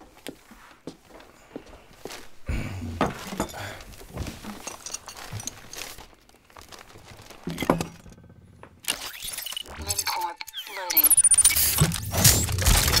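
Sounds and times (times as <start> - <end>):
paper crinkling: 3.8 - 7.5.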